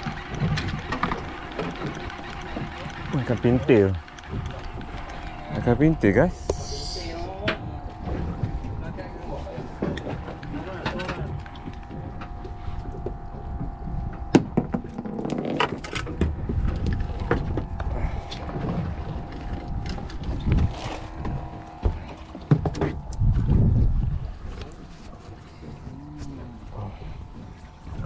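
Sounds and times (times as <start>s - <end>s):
gear clicking and knocking: 0.0s - 23.4s
boat engine hum: 0.0s - 28.0s
wind rumble on microphone: 4.8s - 28.0s.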